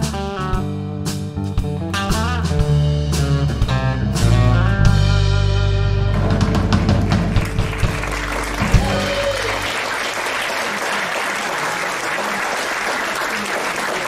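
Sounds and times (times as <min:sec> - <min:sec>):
drum hits: 0:00.0 - 0:09.7
live country band playing: 0:00.0 - 0:10.0
audience applauding: 0:06.1 - 0:14.0.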